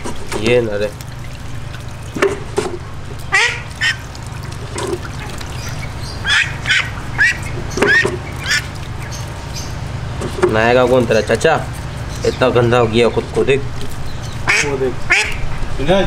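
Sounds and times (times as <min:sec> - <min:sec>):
steady low hum: 0:00.0 - 0:16.0
duck quacking: 0:03.3 - 0:04.0, 0:05.7 - 0:09.2, 0:14.4 - 0:15.5.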